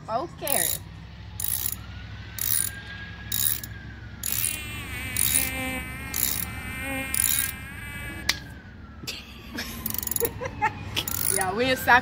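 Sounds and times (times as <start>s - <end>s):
socket ratchet clicking: 0.5s - 0.8s, 1.4s - 1.8s, 2.4s - 7.6s, 9.8s - 10.3s, 11.0s - 11.4s
mosquito whining: 4.3s - 8.3s.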